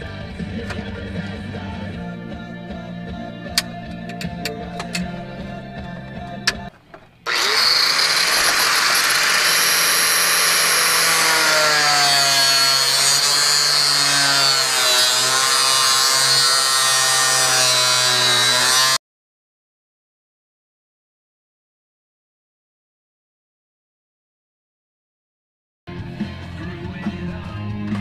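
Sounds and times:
angle grinder grinding plastic: 6.5 - 19.0.

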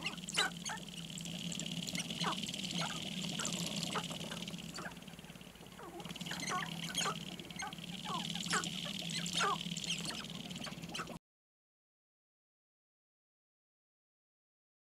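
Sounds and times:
grouse clucking and cackling: 0.0 - 11.2
steady high buzz: 0.0 - 11.2.

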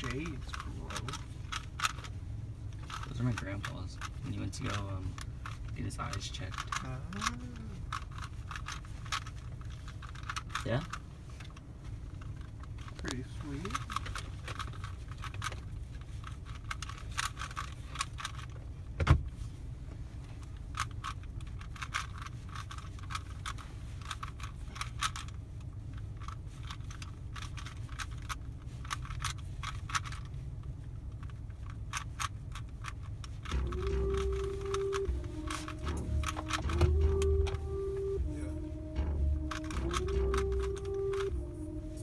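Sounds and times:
car interior rumble: 0.0 - 42.0
music: 33.5 - 42.0.

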